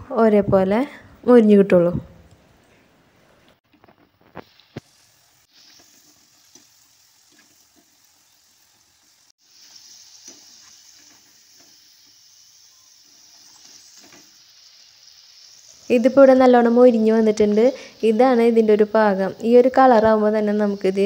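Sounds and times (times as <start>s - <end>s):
hot oil sizzling: 3.6s - 21.0s.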